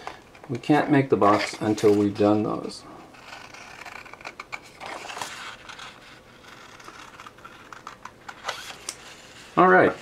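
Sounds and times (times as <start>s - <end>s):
blade cutting paper: 3.1s - 10.0s.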